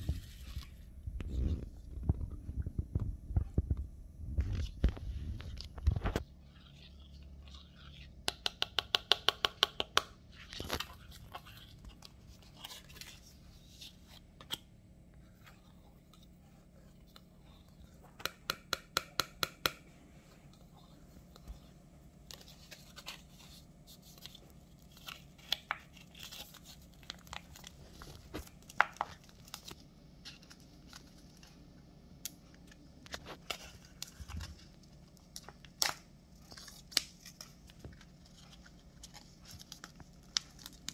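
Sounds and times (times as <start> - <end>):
plastic snack packet crinkling: 32.6 - 40.9.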